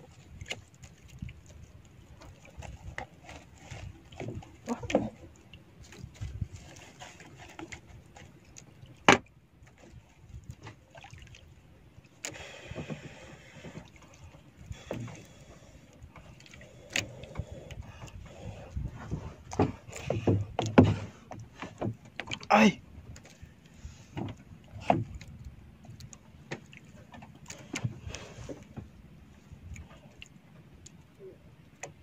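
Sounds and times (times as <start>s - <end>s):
knocks in a small boat: 2.6s - 5.3s, 9.0s - 11.0s, 14.7s - 15.3s, 16.1s - 23.4s, 24.0s - 29.0s.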